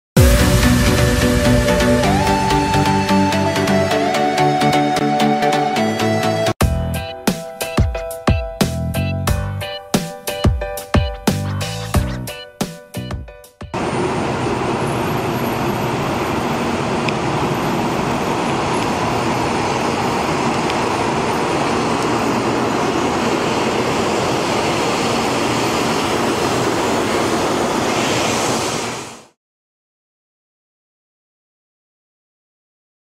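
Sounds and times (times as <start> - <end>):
train rushing past: 0.2 - 6.4, 13.7 - 29.4
music: 0.2 - 13.8.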